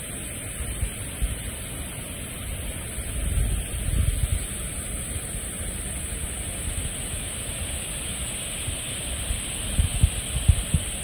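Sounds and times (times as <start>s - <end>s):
waterfall rushing: 0.0s - 11.0s
wind buffeting microphone: 9.7s - 11.0s.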